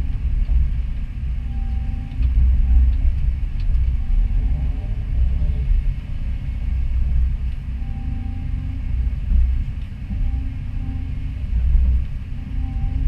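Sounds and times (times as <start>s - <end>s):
excavator engine rumbling: 0.0s - 13.0s
hydraulic whines: 7.7s - 13.0s.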